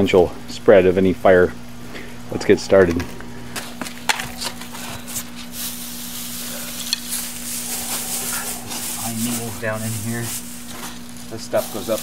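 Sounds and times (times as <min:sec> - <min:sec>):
dry pine needles rustling: 0:03.6 - 0:12.0.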